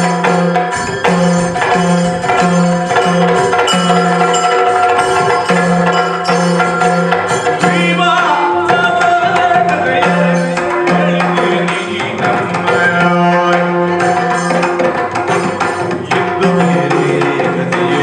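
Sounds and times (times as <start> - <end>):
drums beating fast rhythm: 0.0 - 18.0
person singing: 7.4 - 14.9, 16.0 - 18.0.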